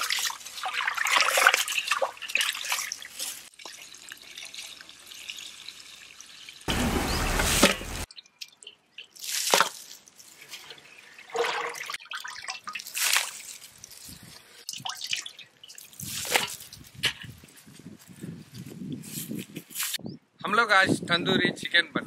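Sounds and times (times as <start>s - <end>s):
wet splashes and slaps: 0.0s - 3.6s, 9.0s - 10.0s, 11.3s - 13.6s
water pouring onto ground: 0.0s - 17.0s.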